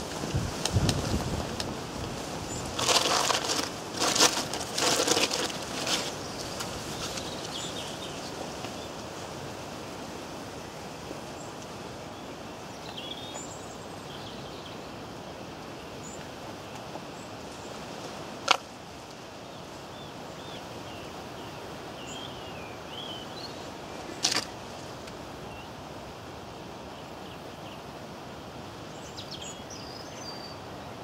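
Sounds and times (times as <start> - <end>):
outdoor background noise: 0.0 - 31.0
birds chirping: 2.4 - 9.0, 11.4 - 15.0, 19.4 - 24.3, 28.9 - 30.7.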